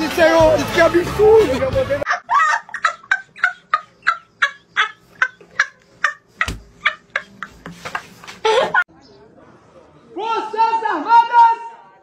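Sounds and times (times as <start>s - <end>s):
boys laughing: 0.5s - 8.9s.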